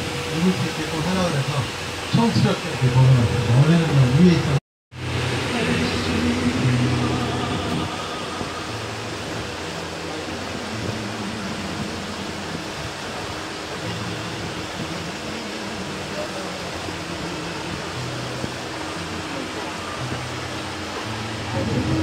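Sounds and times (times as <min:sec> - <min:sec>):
boat engine running: 0:00.0 - 0:22.0
water streaming past hull: 0:00.0 - 0:22.0.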